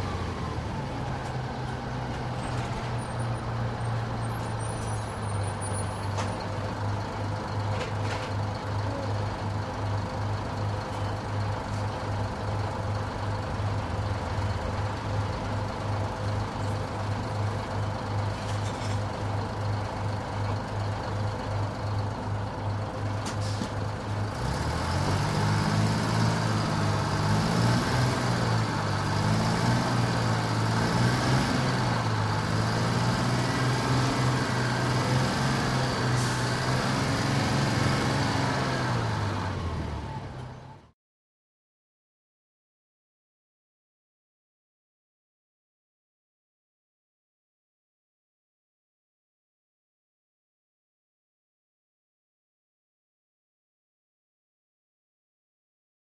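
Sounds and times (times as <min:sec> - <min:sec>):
bus engine: 0:00.0 - 0:41.0.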